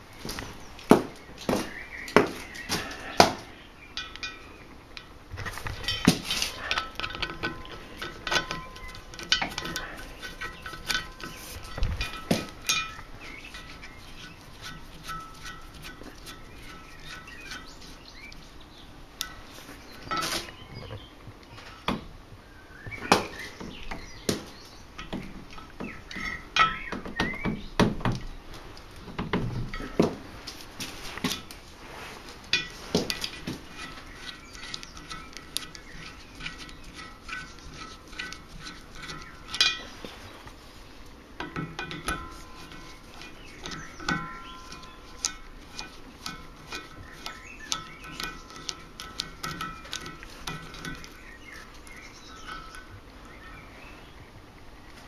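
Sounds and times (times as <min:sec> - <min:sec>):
tool clinking on steel rim: 0:03.9 - 0:05.1, 0:05.8 - 0:18.4, 0:23.2 - 0:27.4, 0:32.5 - 0:40.1, 0:41.4 - 0:53.6.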